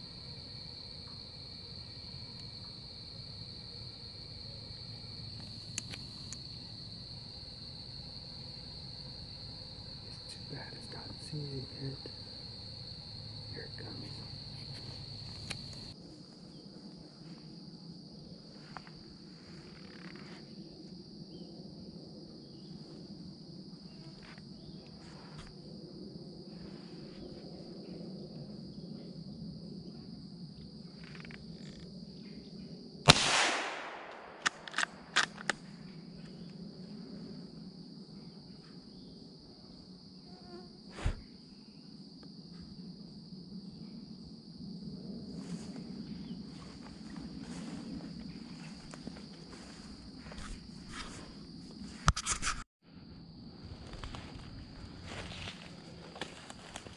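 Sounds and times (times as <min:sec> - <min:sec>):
insects trilling: 0:00.0 - 0:52.1, 0:53.0 - 0:56.9
loud gunshot: 0:33.1 - 0:35.2.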